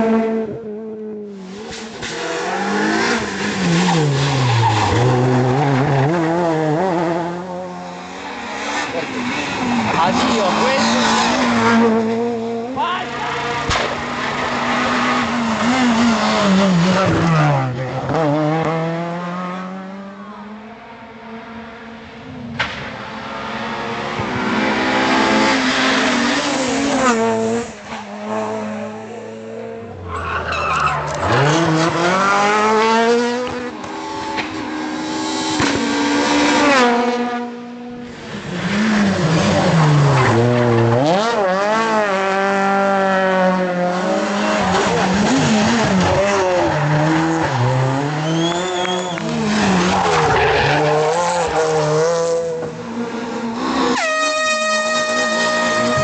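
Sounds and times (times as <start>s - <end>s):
rally car engines revving: 0.0s - 56.0s
tyre squeal: 30.0s - 31.4s, 48.2s - 51.4s.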